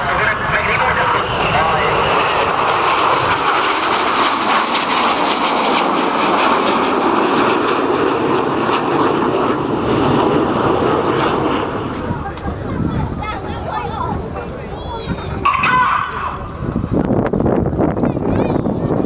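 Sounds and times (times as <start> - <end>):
jet roar: 0.0 - 19.0.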